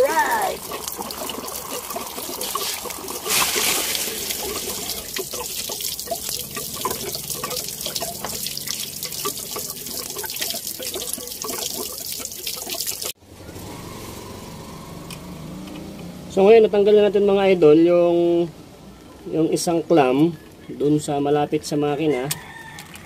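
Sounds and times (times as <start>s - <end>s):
water dripping and splattering: 0.0s - 13.2s
water gushing from hose: 0.0s - 13.2s.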